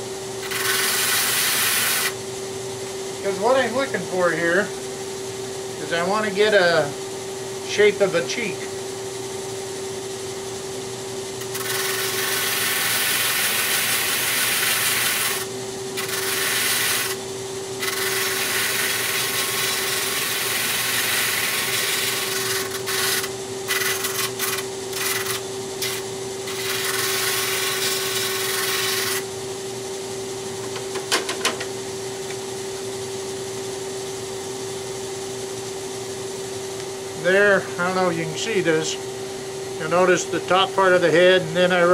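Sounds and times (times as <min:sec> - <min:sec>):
motor hum: 0:00.0 - 0:41.9
wood sanding on drum: 0:00.4 - 0:02.2, 0:11.4 - 0:17.2, 0:17.8 - 0:29.2.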